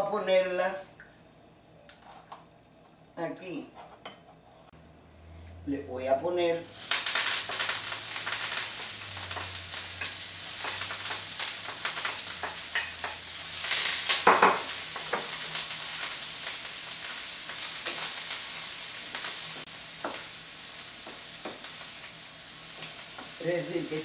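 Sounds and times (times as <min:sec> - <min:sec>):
food sizzling in oil: 0:06.6 - 0:24.0.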